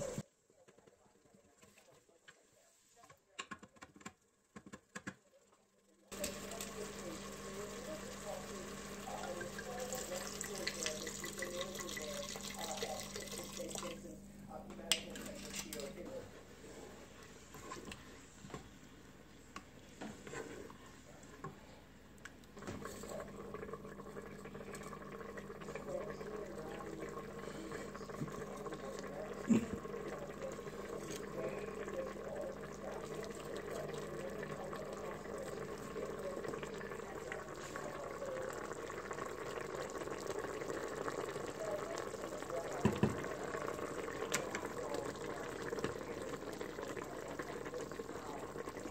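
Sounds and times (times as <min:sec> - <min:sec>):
sauce bubbling in a pot: 0:06.1 - 0:14.0, 0:22.0 - 0:48.9.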